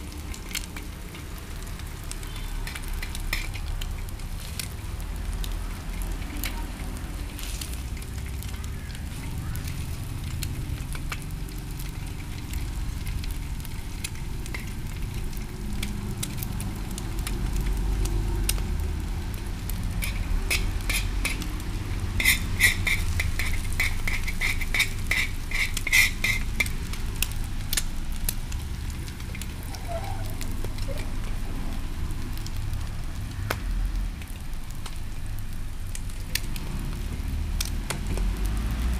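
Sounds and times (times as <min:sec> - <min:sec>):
egg and onion sizzling in a pan: 0:00.0 - 0:38.9
metal spoon scraping a pan: 0:02.3 - 0:03.6, 0:19.9 - 0:27.0.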